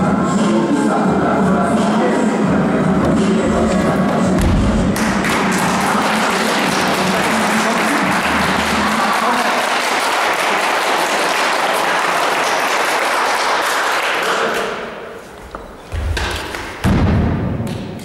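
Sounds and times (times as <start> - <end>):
people applauding: 4.9 - 14.9.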